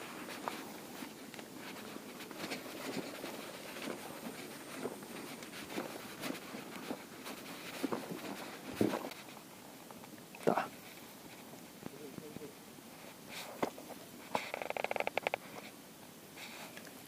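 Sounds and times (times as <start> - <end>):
fishing gear rustling and knocking: 0.0 - 11.9, 13.5 - 15.7
footsteps on wooden jetty: 0.2 - 9.1.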